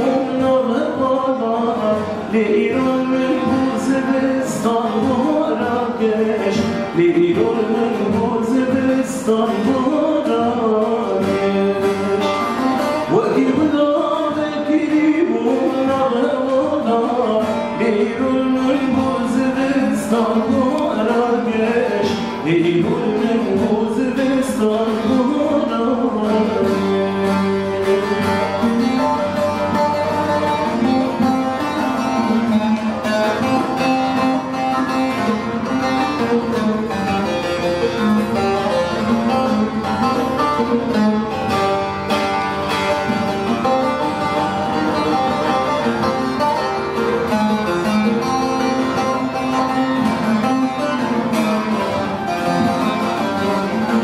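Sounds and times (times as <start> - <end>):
man singing: 0.0 - 41.5.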